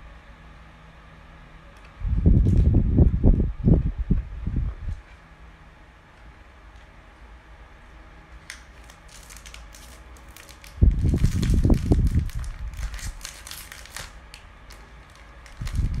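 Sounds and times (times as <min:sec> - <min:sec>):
packet crackling: 0:08.4 - 0:16.0
parrot crunching biscuit: 0:08.4 - 0:16.0.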